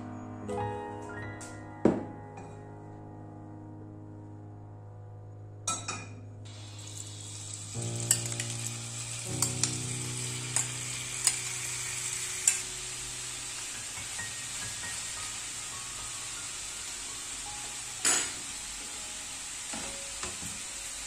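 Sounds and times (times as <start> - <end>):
food sizzling in a frying pan: 6.5 - 21.0.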